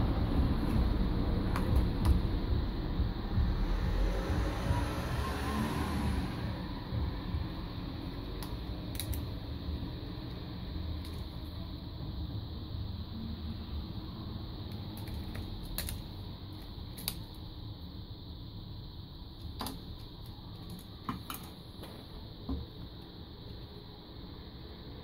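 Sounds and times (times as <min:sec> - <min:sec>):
low background rumble: 0:00.0 - 0:20.9
plastic clicks and snaps: 0:08.4 - 0:09.3, 0:14.7 - 0:16.0.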